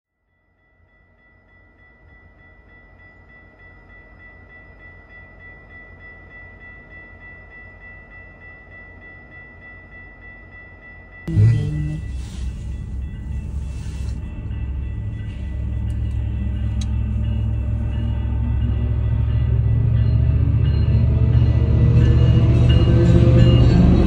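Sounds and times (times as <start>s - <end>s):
level crossing bell ringing: 11.3s - 18.0s
low rumble: 11.3s - 20.7s.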